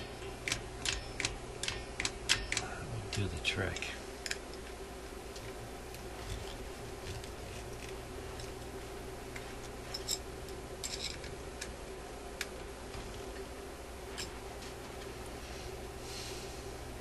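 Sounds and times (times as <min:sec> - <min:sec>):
steady low hum: 0:00.0 - 0:17.0
metallic clicks and taps: 0:00.2 - 0:04.8.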